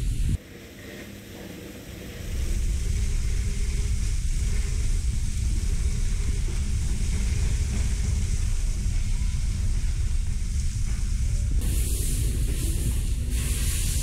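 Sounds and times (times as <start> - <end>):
low rumble: 0.0 - 0.4, 2.0 - 14.0
water spraying and splashing: 10.2 - 14.0.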